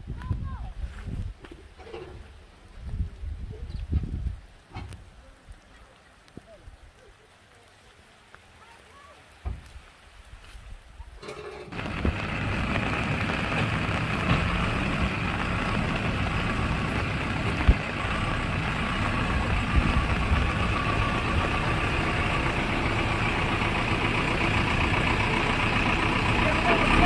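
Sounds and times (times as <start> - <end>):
diesel engine running: 11.2 - 27.0.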